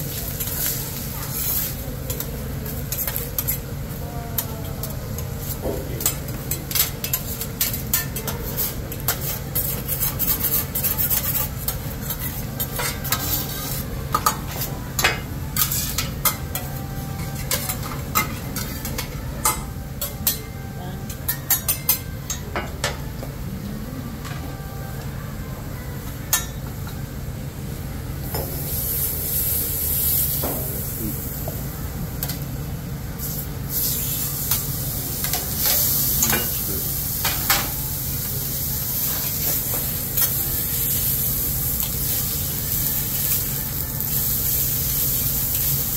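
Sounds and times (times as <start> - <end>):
metal spatulas clanking on griddle: 0.4 - 3.7, 4.4 - 20.5, 21.1 - 23.0, 34.4 - 36.6, 37.2 - 37.8
food sizzling: 28.3 - 32.0, 33.2 - 45.9.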